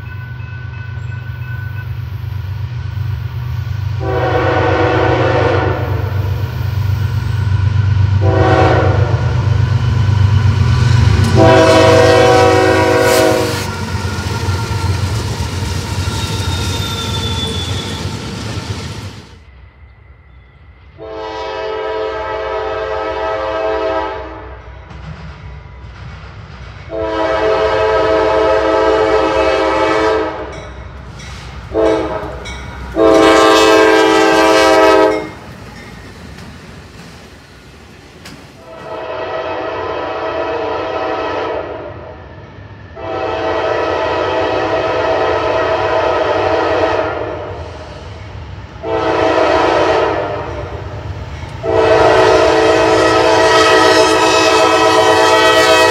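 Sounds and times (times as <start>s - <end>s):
low rumble of train: 0.0s - 55.9s
locomotive air horn blasts: 4.0s - 6.4s, 8.2s - 9.5s, 11.1s - 14.6s, 21.0s - 24.6s, 26.9s - 30.6s, 31.7s - 35.4s, 38.6s - 42.1s, 43.0s - 47.6s, 48.8s - 50.8s, 51.6s - 55.9s.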